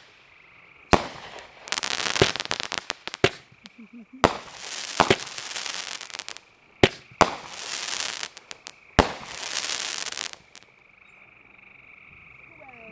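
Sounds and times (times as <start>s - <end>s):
fireworks bangs: 0.0s - 0.2s, 0.9s - 10.7s
fireworks crackling: 0.0s - 10.7s
small pops: 0.9s - 10.6s.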